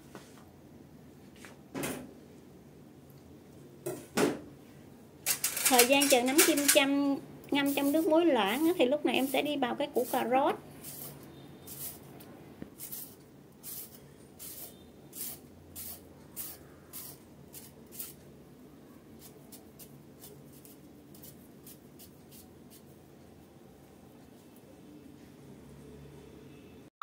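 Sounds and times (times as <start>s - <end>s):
peeler scraping a carrot: 10.0s - 12.0s, 12.8s - 18.2s, 19.2s - 22.9s.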